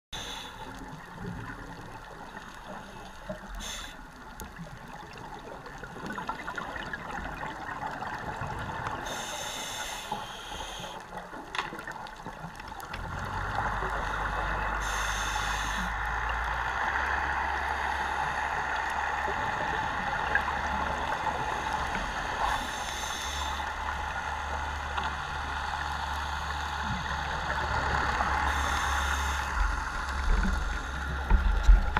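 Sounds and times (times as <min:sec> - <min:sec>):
diver breathing through regulator: 0:00.2 - 0:00.7, 0:03.5 - 0:04.1, 0:09.0 - 0:11.1, 0:13.4 - 0:16.8, 0:21.4 - 0:24.4, 0:27.9 - 0:31.3
hiss and bubbles: 0:00.2 - 0:31.9
rush of water: 0:00.2 - 0:31.9.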